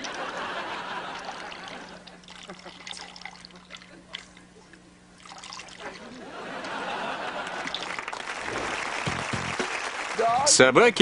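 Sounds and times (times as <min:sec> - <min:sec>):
laughter: 0:00.0 - 0:02.8, 0:05.8 - 0:07.8
audience applauding: 0:06.6 - 0:11.0.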